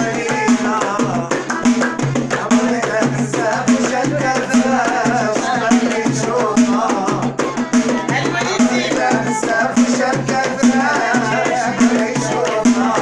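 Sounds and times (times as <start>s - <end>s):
frame drum beaten by hand: 0.0s - 13.0s
rhythmic hand claps: 0.0s - 13.0s
woman singing: 2.3s - 13.0s.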